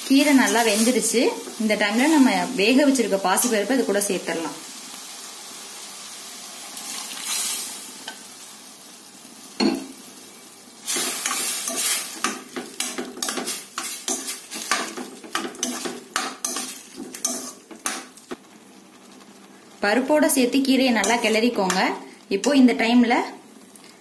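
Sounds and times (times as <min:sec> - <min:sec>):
light sizzle in pan: 0:00.0 - 0:24.0
metal spoon scraping steel pan: 0:10.9 - 0:18.0.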